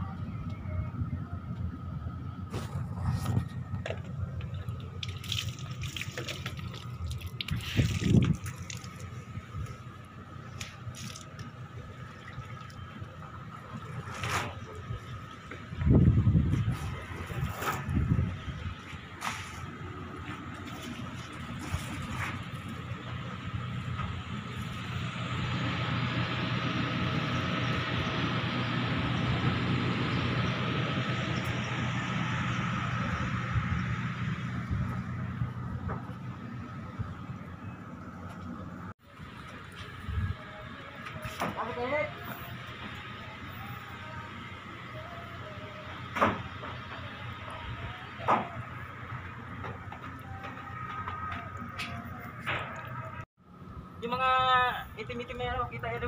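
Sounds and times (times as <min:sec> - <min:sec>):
rumbling outdoor background noise: 0:00.0 - 0:56.0
water splashing and dripping: 0:04.6 - 0:09.8, 0:10.5 - 0:13.9.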